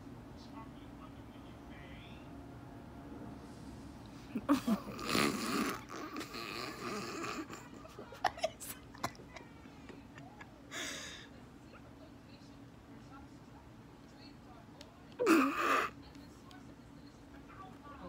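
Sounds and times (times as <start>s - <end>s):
faint steady hum: 0.0s - 18.0s
woman laughing: 4.2s - 5.2s, 7.0s - 11.3s.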